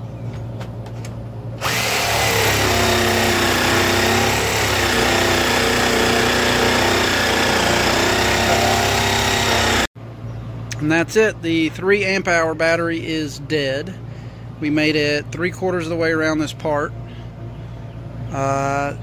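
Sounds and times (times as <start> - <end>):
jigsaw cutting hardwood: 1.6 - 9.9.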